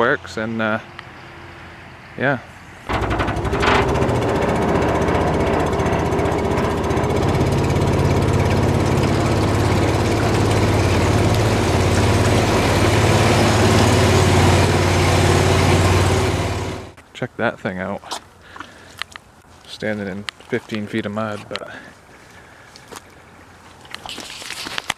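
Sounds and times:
boat engine running steadily: 0:03.0 - 0:16.9.

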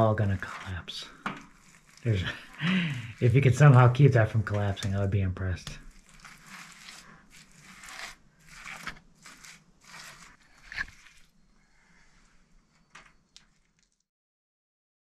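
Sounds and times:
gritty scraping of earth: 0:00.0 - 0:11.4.

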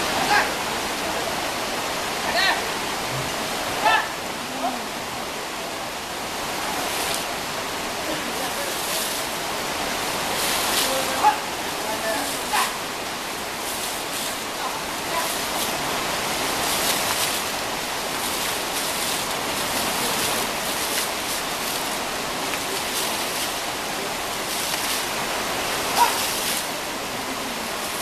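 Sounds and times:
river water rushing: 0:00.0 - 0:28.0
water splashing: 0:00.0 - 0:28.0.

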